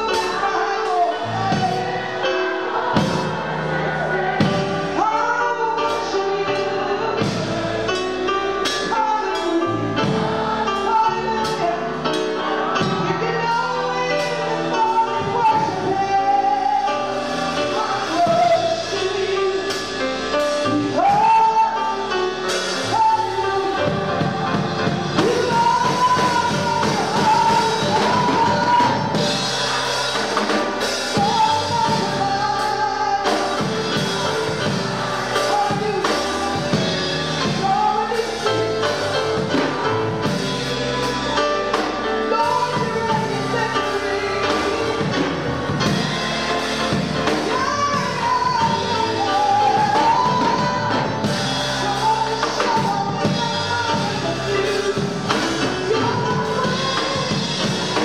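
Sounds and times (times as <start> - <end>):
gospel band playing: 0.0 - 58.0
person singing: 0.0 - 58.0.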